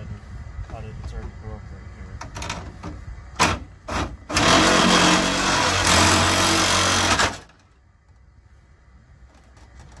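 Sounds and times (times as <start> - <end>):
reciprocating saw cutting: 3.9 - 7.5.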